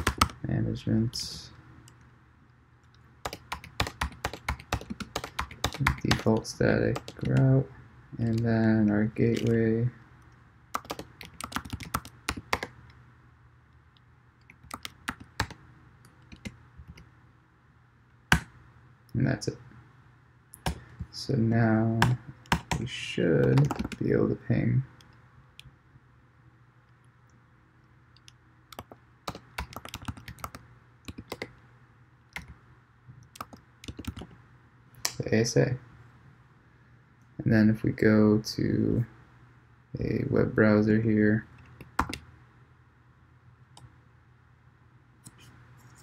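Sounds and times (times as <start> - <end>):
keyboard typing: 0.0 - 0.4, 3.2 - 7.5, 9.3 - 9.6, 10.7 - 12.9, 14.4 - 17.1, 20.6 - 21.1, 22.0 - 24.1, 28.2 - 31.6, 32.3 - 32.6, 33.2 - 34.4, 41.6 - 42.2.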